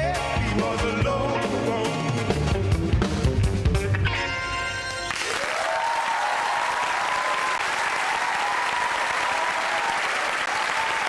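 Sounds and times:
audience applause: 5.1 - 11.0.

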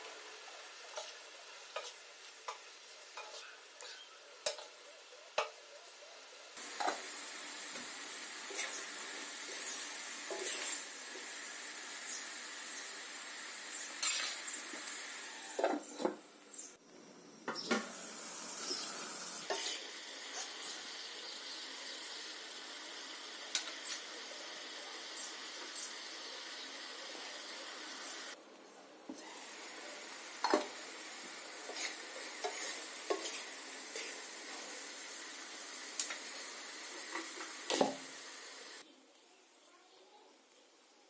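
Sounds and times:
vegetables sizzling in pan: 0.0 - 16.7, 17.6 - 28.4, 29.1 - 38.8
spoon scraping and clinking pan: 31.7 - 33.4.

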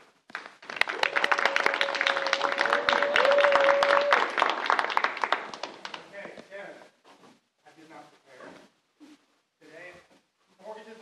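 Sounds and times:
audience applauding: 0.3 - 6.1.

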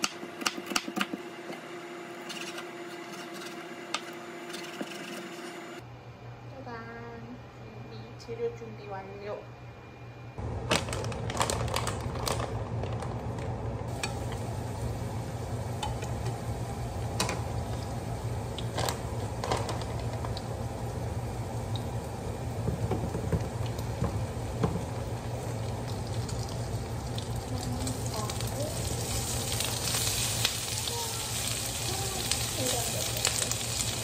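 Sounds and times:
food sizzling in a pan: 13.9 - 34.0.

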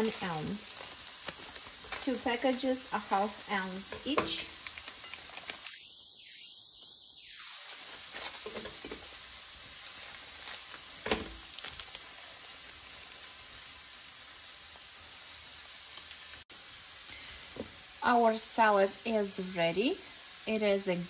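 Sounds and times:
plastic rustling: 0.0 - 5.8, 7.6 - 12.7
chicken frying in a pan: 0.0 - 21.0.

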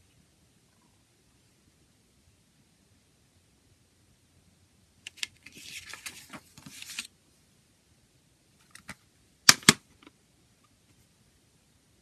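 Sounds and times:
paper booklet rustling: 5.1 - 7.1.

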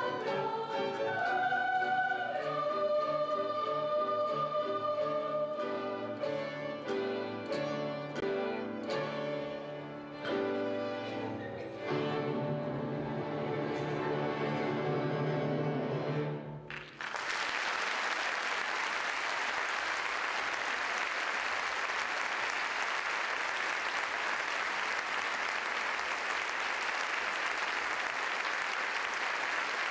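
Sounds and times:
audience applause: 16.7 - 29.9.

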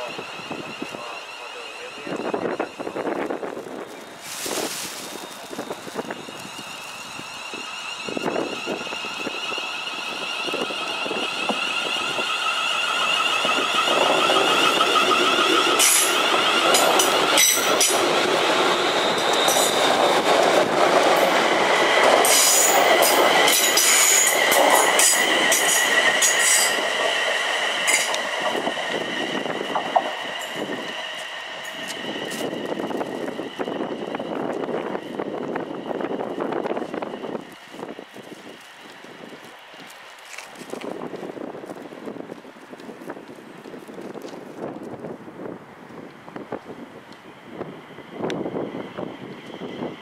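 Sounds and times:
wheel squeal: 0.0 - 20.3, 22.2 - 39.2
rail clicks: 0.0 - 50.0
train traction motor whine: 0.0 - 50.0.

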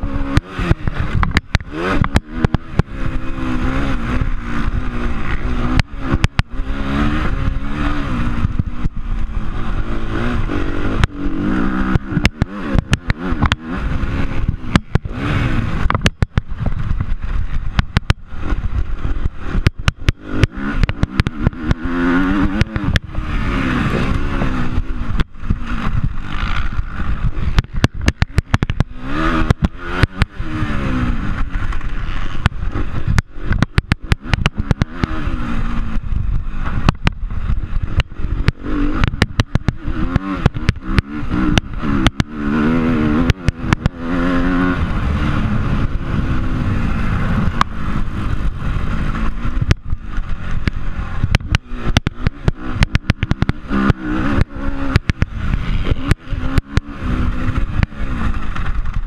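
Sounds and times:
motorcycle engine revving: 0.0 - 59.0
sharp knocks and clatter: 0.2 - 3.2, 10.8 - 30.4, 31.6 - 35.3, 37.9 - 44.4, 49.2 - 59.0.

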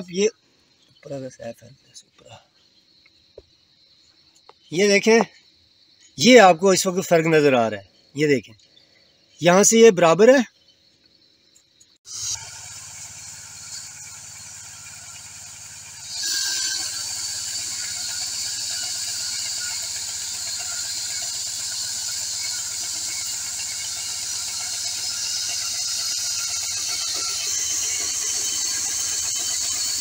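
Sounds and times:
band saw blade whining: 12.1 - 30.0
small petrol engine running: 12.1 - 30.0.

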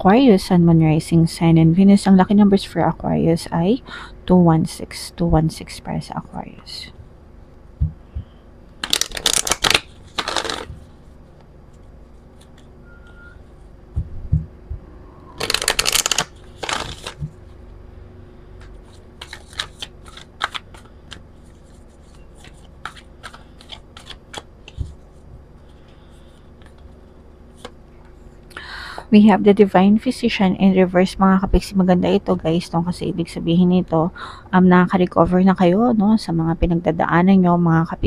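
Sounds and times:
cards riffle shuffling: 8.8 - 11.0, 15.4 - 17.4, 18.6 - 27.8.

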